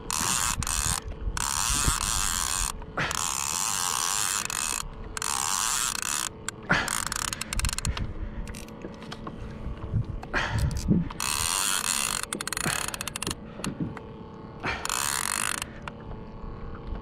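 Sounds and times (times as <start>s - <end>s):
rapid ratchet clicking: 0.0s - 8.8s, 10.6s - 13.4s, 14.8s - 15.9s
fishing reel gears whirring: 0.0s - 17.0s.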